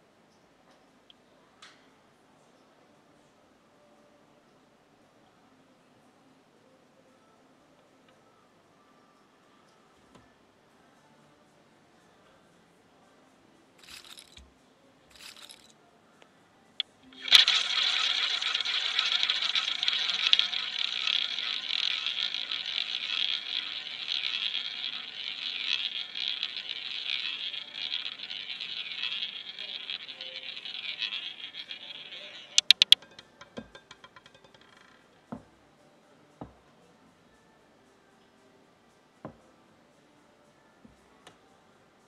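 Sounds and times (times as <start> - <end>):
roulette ball whirring around wheel: 13.8 - 14.5, 15.1 - 15.7, 16.8 - 35.5
roulette ball clicking in pockets: 16.8 - 35.4.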